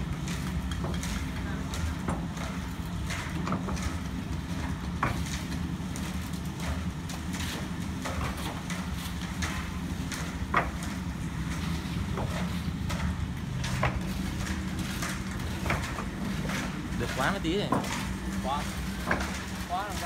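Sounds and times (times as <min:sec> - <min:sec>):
bricks clinking and knocking: 0:13.0 - 0:20.0.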